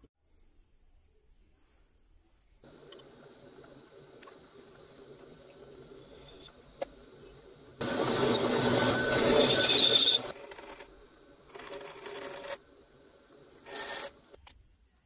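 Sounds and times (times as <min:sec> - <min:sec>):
drill press bit cutting: 0:07.8 - 0:12.7.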